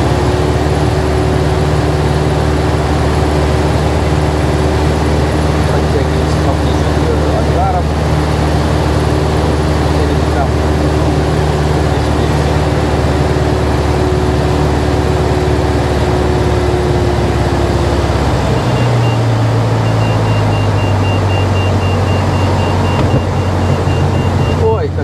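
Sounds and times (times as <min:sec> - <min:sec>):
light aircraft engine idling: 0:00.0 - 0:25.0.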